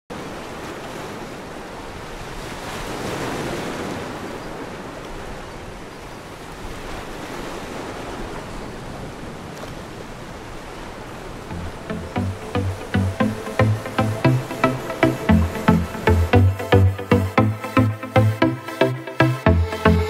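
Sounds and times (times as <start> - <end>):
ocean waves washing: 9.8 - 20.0.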